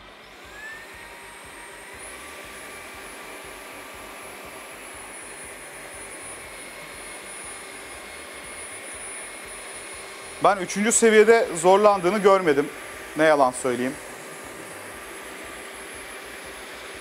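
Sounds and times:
floor vacuum running: 0.0 - 17.0.

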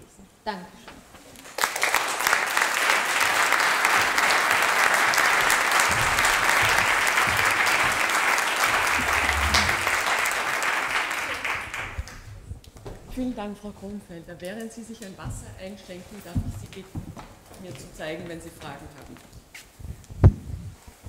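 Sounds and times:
audience applauding: 1.5 - 12.3.

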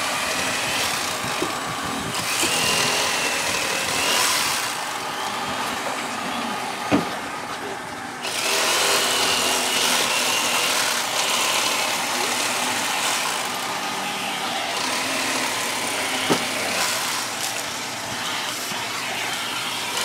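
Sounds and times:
broad rushing noise: 0.0 - 20.0
motor running: 0.0 - 20.0.

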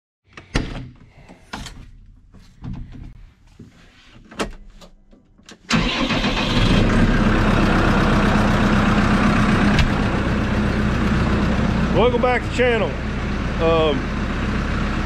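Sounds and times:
tractor diesel engine starting and idling: 5.6 - 15.0.

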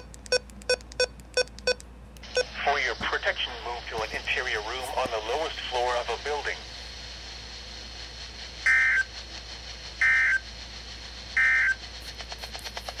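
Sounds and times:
radio hiss and whine: 2.2 - 13.0
two-tone data bursts: 10.0 - 10.4, 11.4 - 11.8.

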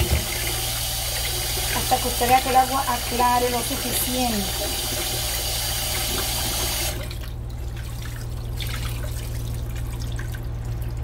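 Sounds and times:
tap running into steel sink: 0.0 - 0.4
rinse water trickling and dripping: 0.0 - 11.0.

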